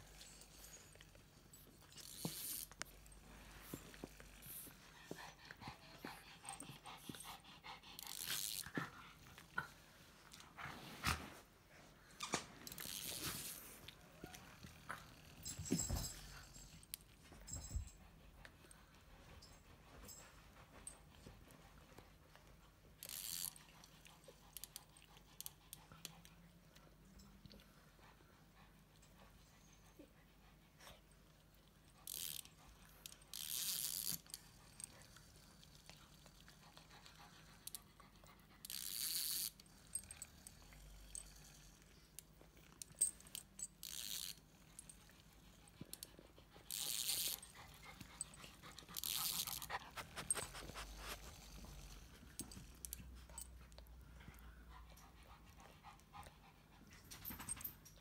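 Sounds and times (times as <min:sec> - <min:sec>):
dog huffing and panting: 0:03.7 - 0:09.8, 0:44.8 - 0:57.8.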